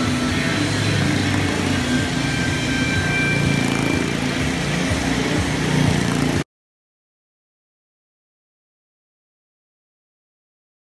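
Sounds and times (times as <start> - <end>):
motorcycle engine running: 0.0 - 6.4.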